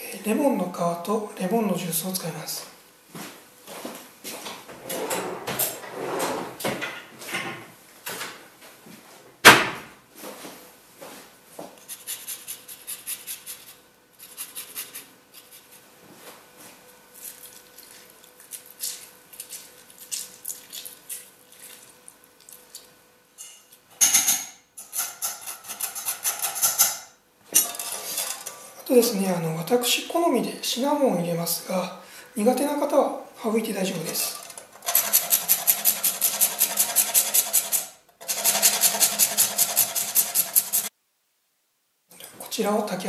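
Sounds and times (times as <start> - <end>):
metal kitchenware clattering: 23.4 - 28.7
grater scraping zest: 27.6 - 28.5, 34.1 - 40.9.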